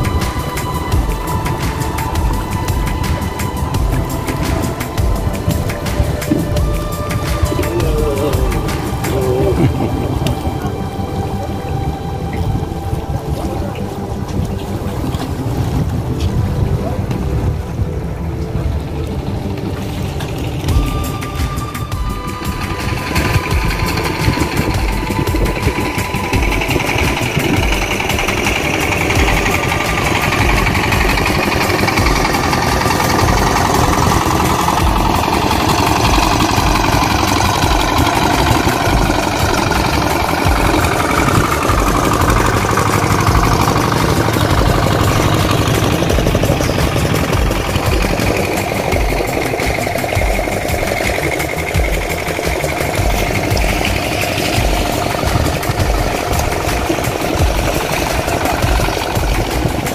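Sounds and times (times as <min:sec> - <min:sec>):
boat engine throbbing: 0:00.0 - 0:59.9.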